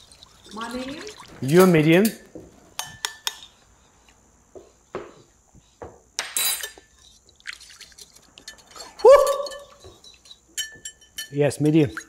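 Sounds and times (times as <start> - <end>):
whisk clinking against ceramic bowl: 7.8 - 12.0.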